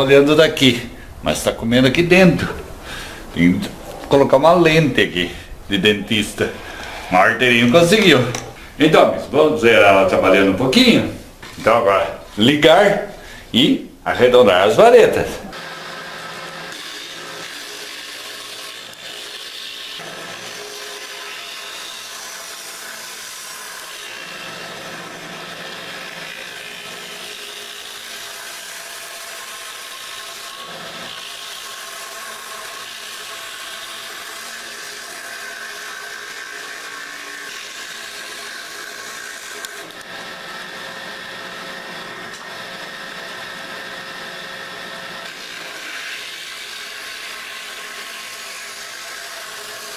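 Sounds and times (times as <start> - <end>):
cutter shaving wood: 2.0 - 49.9
machine motor whir: 15.5 - 49.9.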